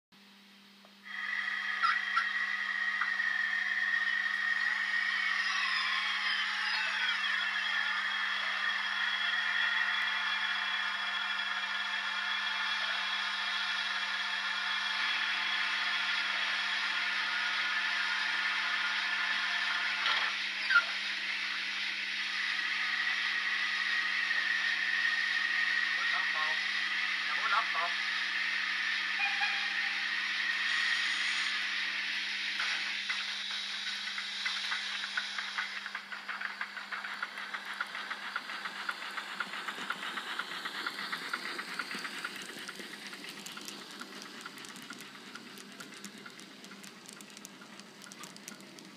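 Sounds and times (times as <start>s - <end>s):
faint steady whine: 0.2s - 48.9s
steam hiss through small speaker: 1.0s - 48.9s
wheels clicking on track: 32.5s - 48.9s.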